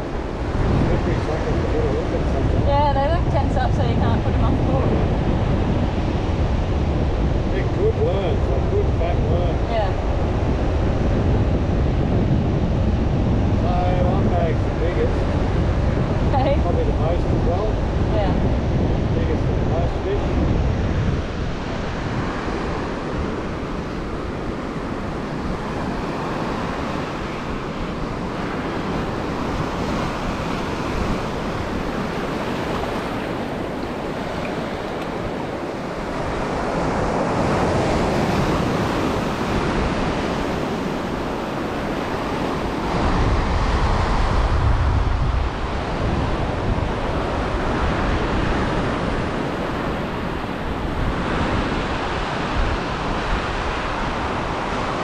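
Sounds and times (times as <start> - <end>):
ocean surf breaking: 0.0 - 55.0
wind rumbling on microphone: 0.0 - 55.0.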